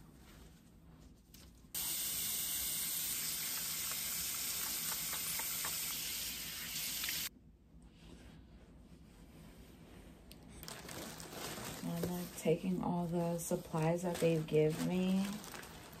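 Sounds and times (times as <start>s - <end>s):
tap water running into sink: 1.8s - 7.3s.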